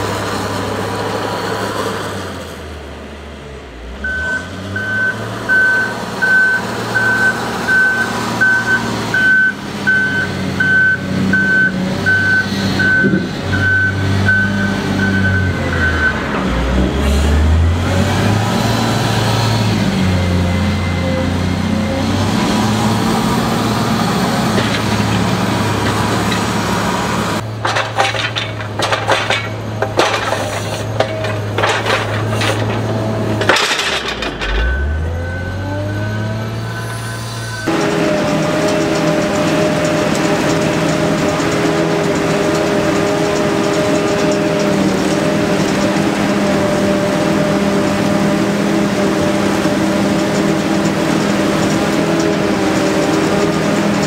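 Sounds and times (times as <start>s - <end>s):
wheel loader diesel engine: 0.0s - 54.0s
reversing alarm beeps: 4.0s - 16.2s, 34.6s - 35.6s
rapid clattering knocks: 27.5s - 34.4s.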